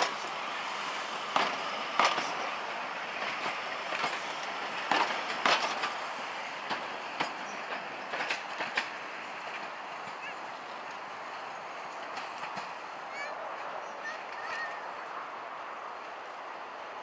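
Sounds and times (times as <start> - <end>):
train wheels clacking over rail joints: 0.0 - 13.3
train rumble: 0.0 - 17.0.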